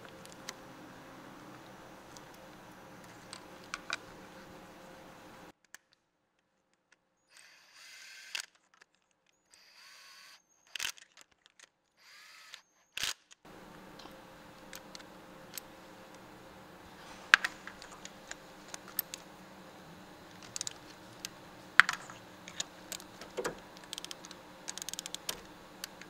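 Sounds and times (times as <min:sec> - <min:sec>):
low steady background hum: 0:00.0 - 0:05.5, 0:13.5 - 0:26.0
tool scraping: 0:13.5 - 0:26.0
torque wrench metallic clicks: 0:20.3 - 0:26.0.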